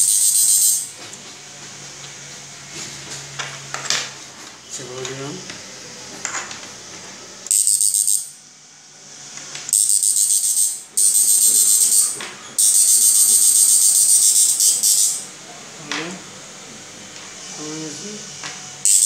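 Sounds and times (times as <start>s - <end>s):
high-pitched pulsing electric buzz: 0.0s - 1.0s, 7.5s - 8.4s, 9.7s - 15.4s, 17.4s - 19.0s.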